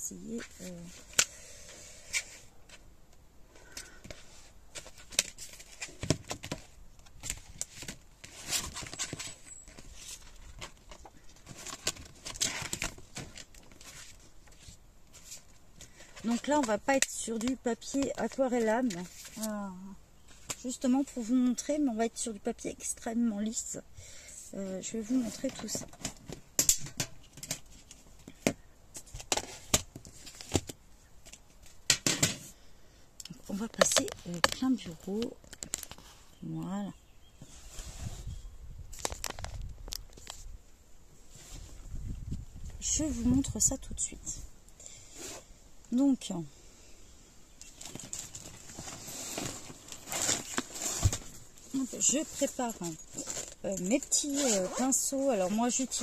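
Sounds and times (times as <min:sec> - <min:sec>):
papers and folder rustling: 0:00.2 - 0:02.9, 0:03.6 - 0:21.8, 0:24.6 - 0:32.6, 0:33.3 - 0:36.3, 0:37.4 - 0:40.5, 0:47.6 - 0:56.0.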